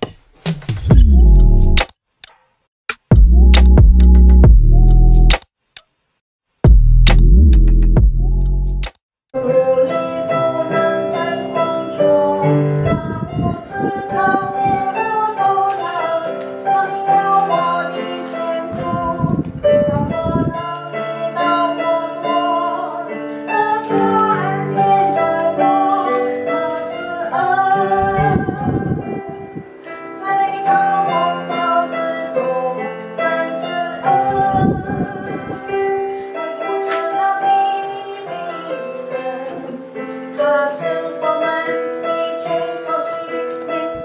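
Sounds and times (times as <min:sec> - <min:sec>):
keyboard accompaniment: 0:02.9 - 0:05.5, 0:06.7 - 0:44.0
woman singing: 0:09.4 - 0:44.0.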